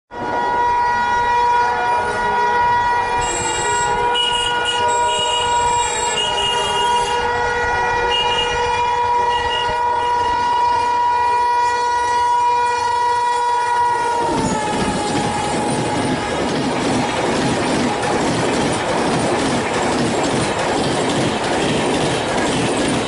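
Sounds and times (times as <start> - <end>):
train horn long blast: 0.1 - 16.5
train rumbling on track: 0.1 - 23.0.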